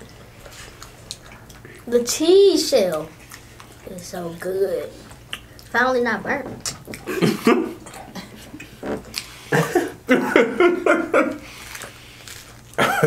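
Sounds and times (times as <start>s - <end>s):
people laughing: 7.1s - 8.5s, 9.6s - 11.4s.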